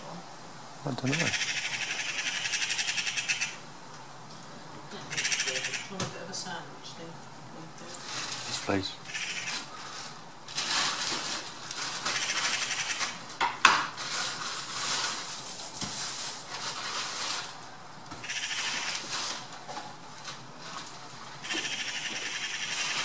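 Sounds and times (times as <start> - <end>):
magpies chattering: 0.9 - 3.7, 4.9 - 6.1, 8.5 - 9.8, 12.1 - 13.2, 18.2 - 19.3, 21.4 - 23.0.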